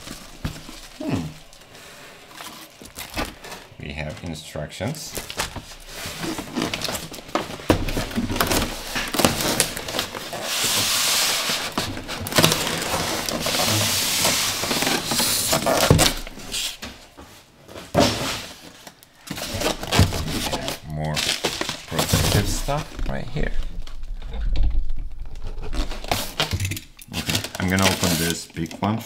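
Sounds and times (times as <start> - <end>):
foam scraping against cardboard: 10.3 - 11.9.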